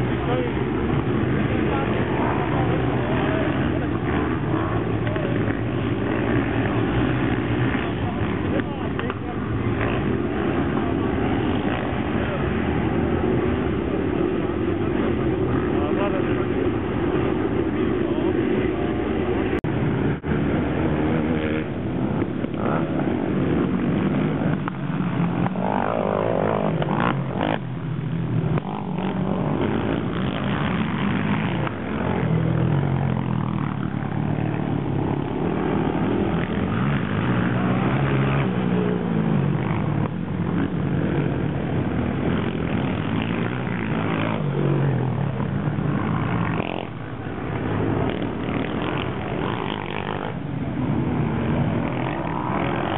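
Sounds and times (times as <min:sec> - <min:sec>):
quad bike engines revving: 0:00.0 - 0:52.9.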